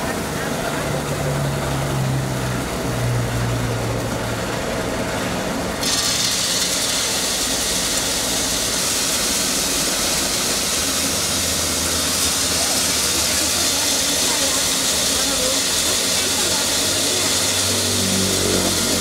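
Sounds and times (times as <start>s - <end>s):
machine humming: 0.0s - 19.0s
peanuts pouring through machine: 4.1s - 19.0s.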